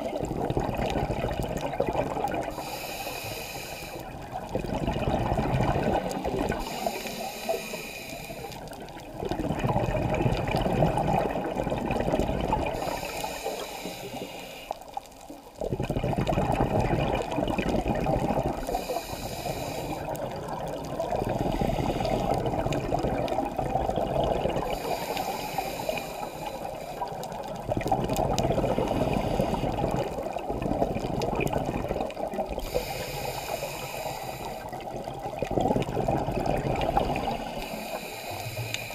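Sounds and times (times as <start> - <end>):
exhaled bubbles rushing: 0.0 - 2.6, 4.1 - 6.7, 8.6 - 13.1, 15.5 - 18.8, 20.0 - 25.0, 27.0 - 33.8, 34.4 - 37.6
regulator inhale hiss: 2.5 - 4.2, 6.0 - 8.8, 12.7 - 15.4, 18.6 - 20.2, 21.3 - 22.5, 24.6 - 27.6, 28.8 - 30.1, 32.1 - 34.9, 37.2 - 38.9.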